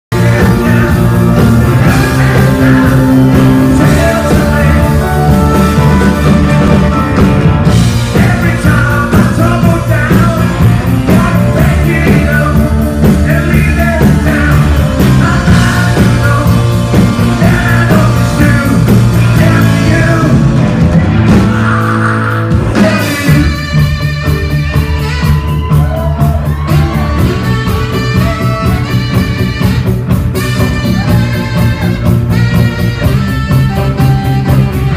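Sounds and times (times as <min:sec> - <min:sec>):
lead singer singing: 0:00.1 - 0:24.0
live rock band playing: 0:00.1 - 0:34.9
saxophone lead: 0:00.1 - 0:34.9.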